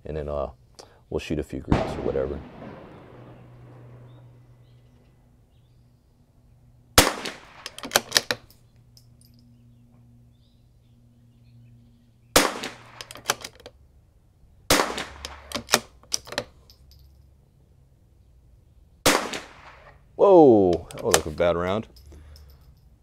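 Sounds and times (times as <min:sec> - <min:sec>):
rifle shots: 0:01.7 - 0:04.8, 0:07.0 - 0:08.3, 0:12.4 - 0:13.5, 0:14.7 - 0:16.0, 0:19.0 - 0:20.0
sharp echoing cracks: 0:01.7 - 0:05.2, 0:07.0 - 0:08.5, 0:12.4 - 0:13.5, 0:14.7 - 0:15.9, 0:19.1 - 0:20.0.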